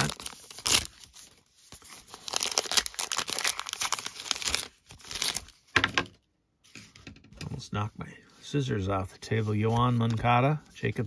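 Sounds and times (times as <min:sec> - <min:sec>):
wrapper tearing and crinkling: 0:00.0 - 0:05.7.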